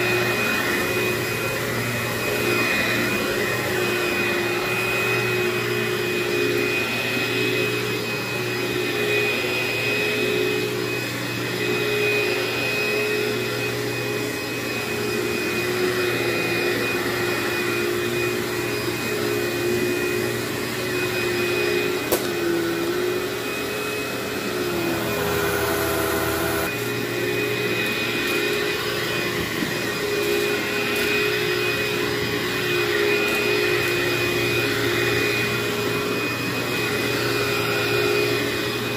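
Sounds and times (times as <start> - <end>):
vacuum cleaner running on carpet: 0.0 - 38.9.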